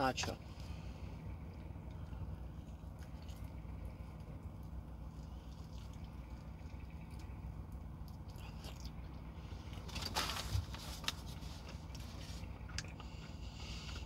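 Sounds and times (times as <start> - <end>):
steady low hum: 0.0 - 14.0
chewing crispy fried chicken: 1.4 - 10.1
crackly crunch: 1.4 - 14.0.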